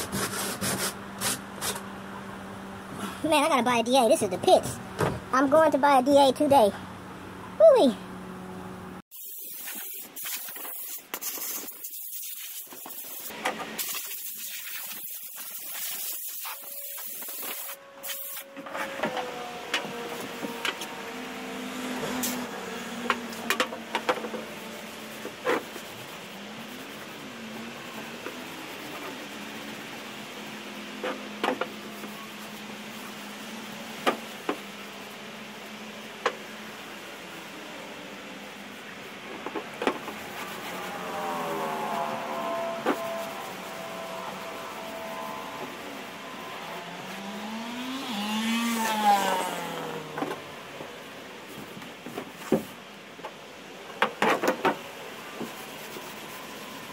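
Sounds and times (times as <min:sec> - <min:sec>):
hiss in bursts: 0:09.1 - 0:18.5.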